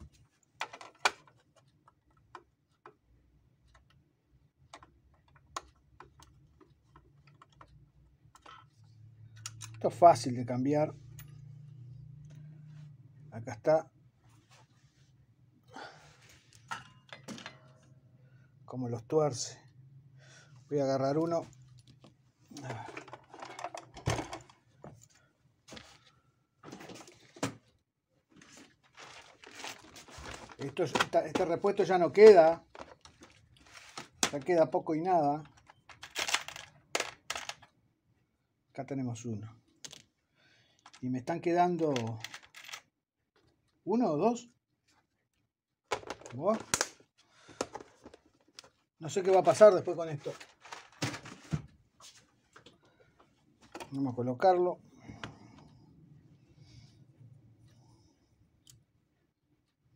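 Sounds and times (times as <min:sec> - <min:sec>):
sewing machine parts clicking and knocking: 0:35.4 - 0:37.8, 0:41.8 - 0:42.9.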